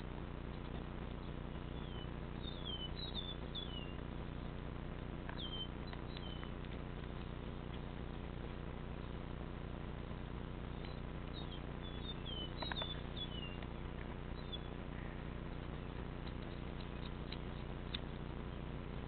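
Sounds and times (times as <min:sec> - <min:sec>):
frog squeaking: 0:10.7 - 0:14.8.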